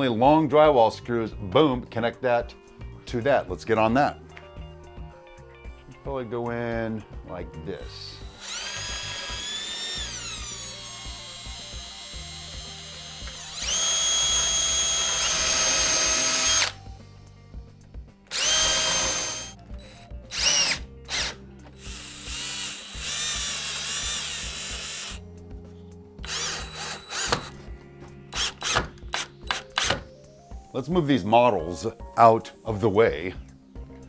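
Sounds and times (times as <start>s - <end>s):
quiet background music: 0.0s - 34.0s
power drill whining: 7.9s - 16.8s, 18.3s - 25.2s, 26.2s - 27.7s, 28.3s - 30.0s.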